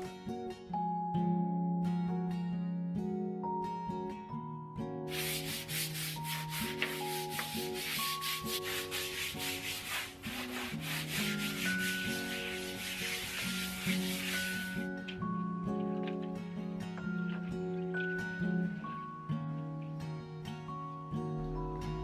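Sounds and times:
soft background music: 0.0s - 22.0s
scrub brush scrubbing tile floor: 5.1s - 15.0s.

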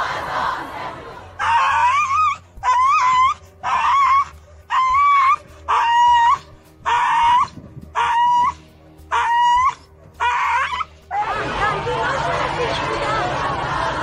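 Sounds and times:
dog whining and crying: 1.4s - 10.9s.

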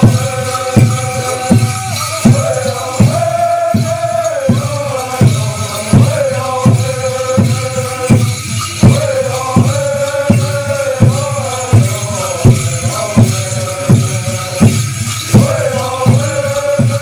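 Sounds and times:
group of voices chanting: 0.0s - 8.2s
steady drum beat: 0.0s - 17.0s.

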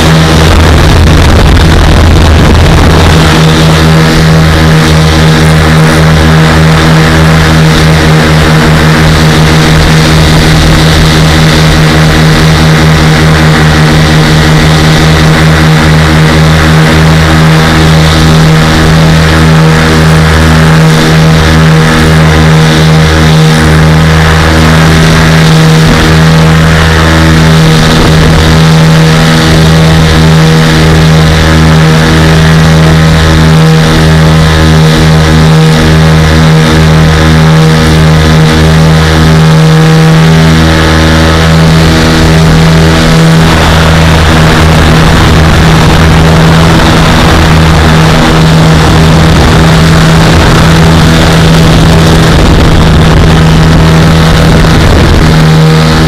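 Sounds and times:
aircraft engines droning: 0.0s - 56.0s
wind buffeting microphone: 0.0s - 56.0s.

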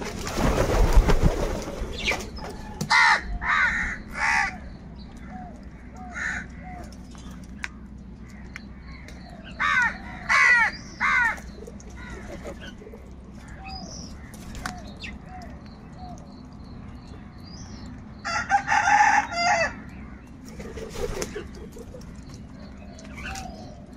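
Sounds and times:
crows cawing: 2.8s - 4.7s, 5.7s - 6.8s, 8.2s - 12.7s.

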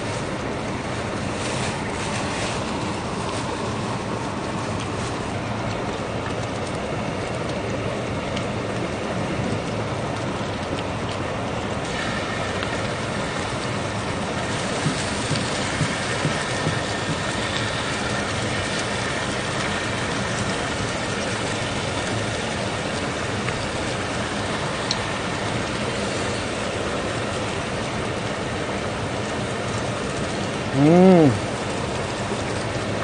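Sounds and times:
meat sizzling on griddle: 11.8s - 33.0s.

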